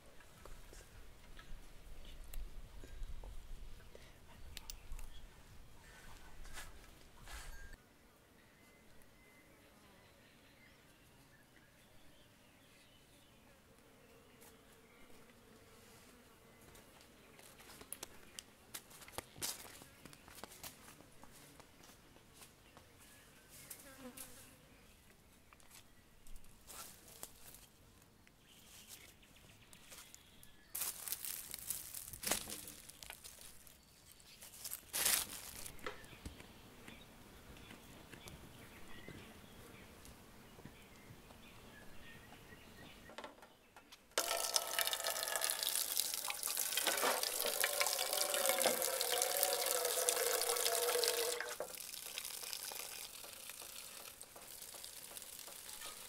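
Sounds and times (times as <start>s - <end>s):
water running and splashing: 44.2s - 56.0s.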